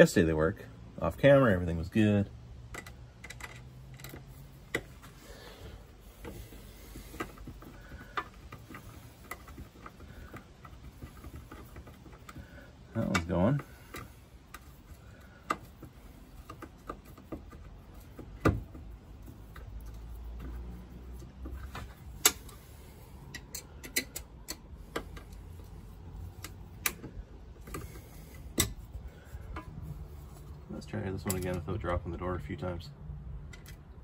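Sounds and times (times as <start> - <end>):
screws and hinge hardware clicking: 2.7 - 5.1, 6.2 - 28.8.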